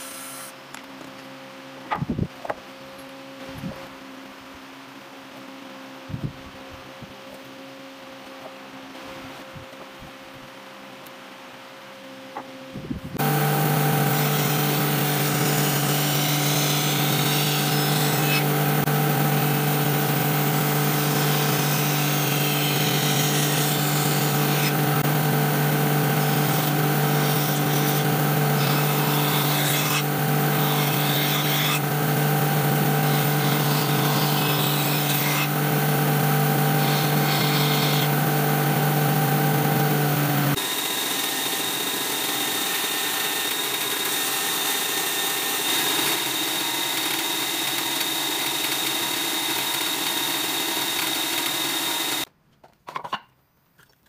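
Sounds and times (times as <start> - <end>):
band saw cutting wood: 0.0 - 0.6, 13.2 - 52.3.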